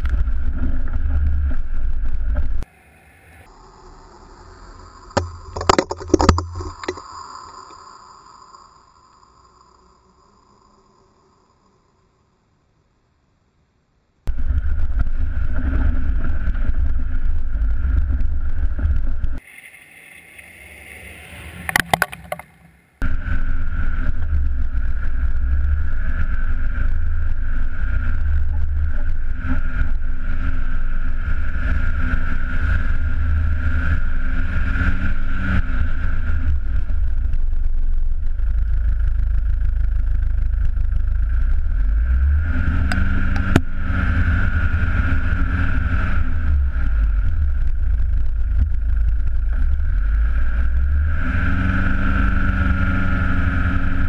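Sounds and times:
diesel engine driving hard: 0.0 - 7.2, 14.3 - 19.4, 23.0 - 54.0
wind rumble: 0.0 - 12.4, 14.3 - 54.0
clicks: 21.6 - 22.7.

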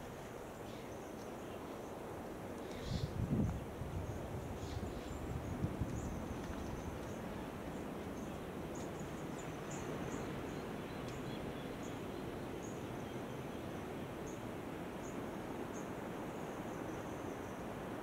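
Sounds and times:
steady low hiss: 0.0 - 18.0.

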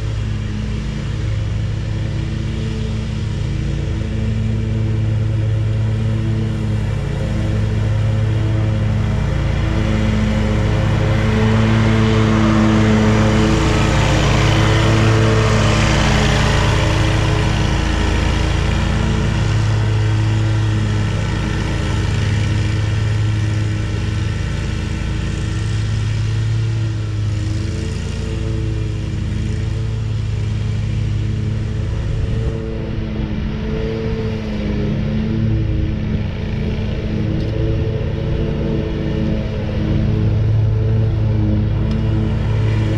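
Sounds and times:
mower deck rushing noise: 0.0 - 42.9
mower engine running: 0.0 - 42.9.

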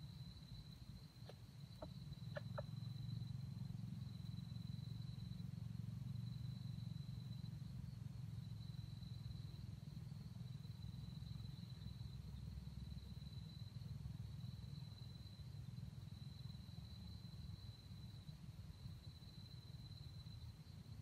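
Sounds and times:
insect trilling: 0.0 - 7.7.

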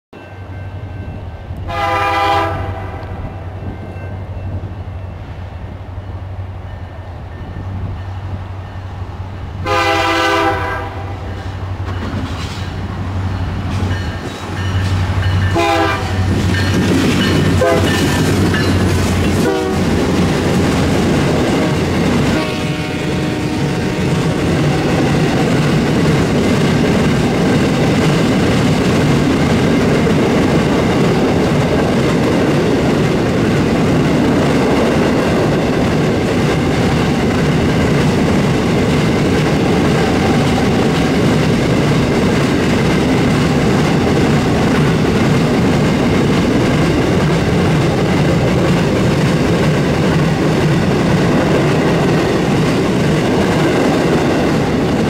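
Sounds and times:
locomotive engines rumbling: 0.3 - 55.0
train horn blasts: 1.6 - 3.6, 9.6 - 11.6, 15.5 - 16.4, 17.4 - 18.2, 19.3 - 20.1, 21.5 - 25.2
train wheels clattering: 11.2 - 55.0.

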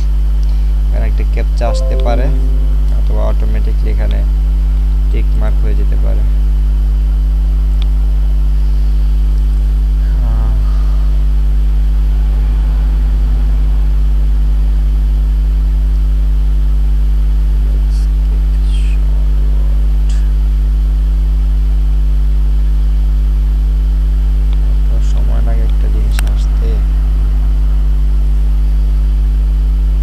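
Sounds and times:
faint high chirps: 1.7 - 3.1
faint steady tones: 1.7 - 3.3.

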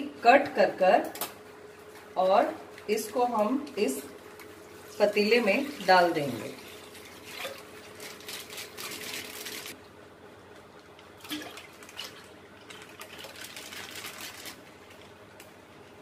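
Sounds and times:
plastic pouch crinkling: 7.6 - 9.8, 12.7 - 15.2.

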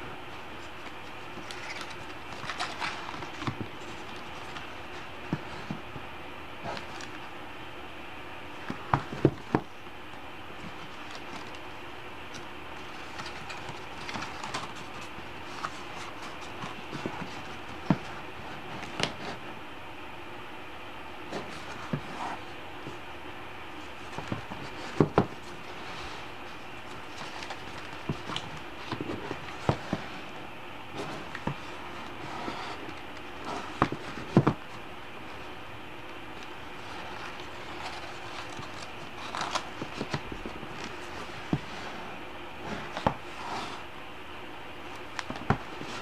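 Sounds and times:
paper pages rustling and clicking: 0.3 - 7.3, 8.6 - 9.7, 10.5 - 19.5, 21.3 - 23.0, 23.8 - 43.8, 44.9 - 46.0.

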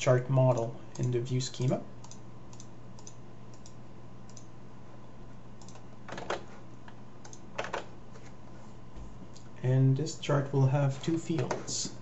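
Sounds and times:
faint electrical hum: 0.0 - 12.0
computer mouse clicking: 0.5 - 4.5, 5.6 - 8.3.

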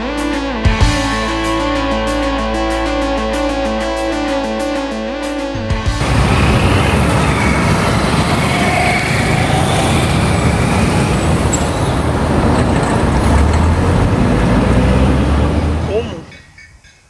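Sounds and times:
street background rumble: 6.0 - 16.8.

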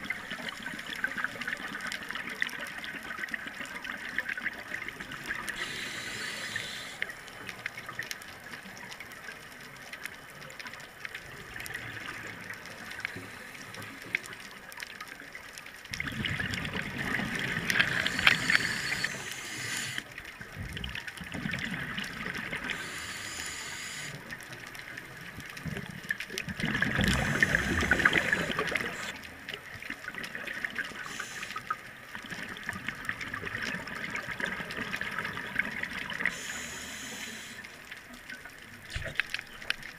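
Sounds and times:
steady watery hiss: 0.0 - 39.9
exhaled bubbles underwater: 15.8 - 39.9.

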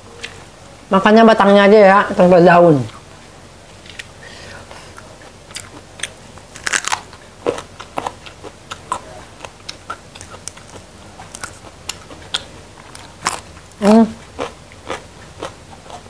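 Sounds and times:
crisp crunches of vegetable stems: 6.5 - 8.1, 10.2 - 13.5.

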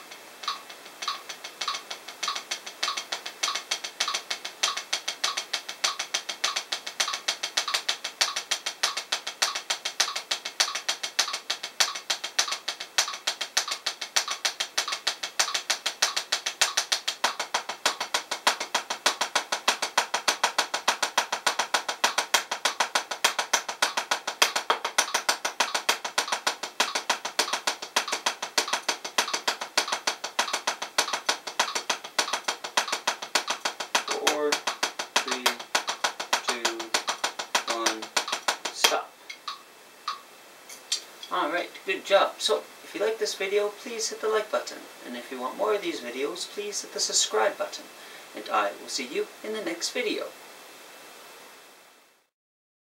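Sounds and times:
drumsticks striking practice pad: 0.0 - 41.4.

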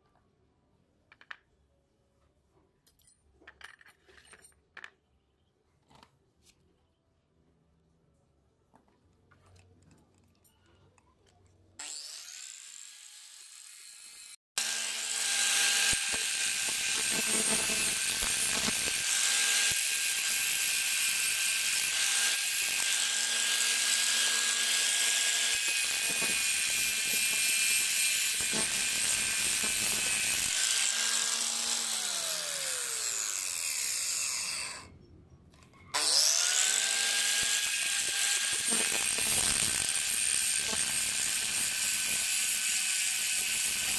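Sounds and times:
angle grinder grinding steel: 11.8 - 34.9, 36.0 - 43.9.

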